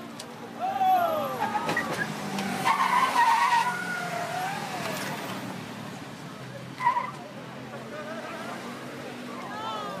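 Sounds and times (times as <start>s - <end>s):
car tyres squealing: 0.6s - 5.3s, 6.7s - 7.3s.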